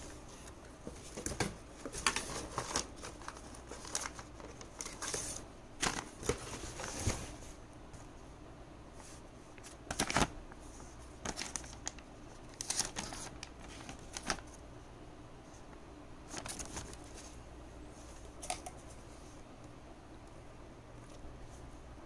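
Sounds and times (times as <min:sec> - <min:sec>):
paper rustling and crinkling: 0:00.0 - 0:07.6, 0:09.0 - 0:14.6, 0:16.3 - 0:17.4.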